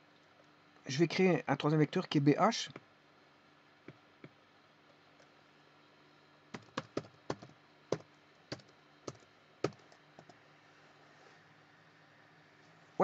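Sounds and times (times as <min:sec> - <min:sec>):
typing on computer keyboard: 0:06.6 - 0:10.4.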